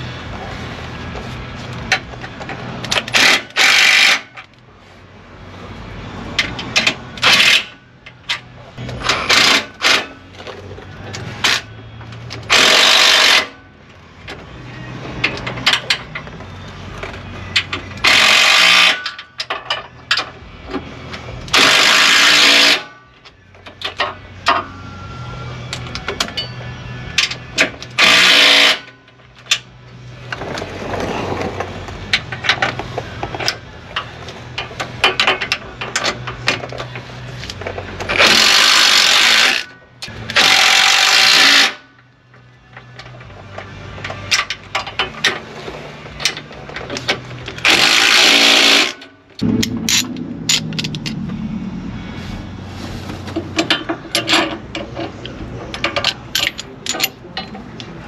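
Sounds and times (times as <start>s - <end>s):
impact wrench bursts: 18.0s - 19.0s, 28.0s - 28.9s, 47.6s - 51.0s.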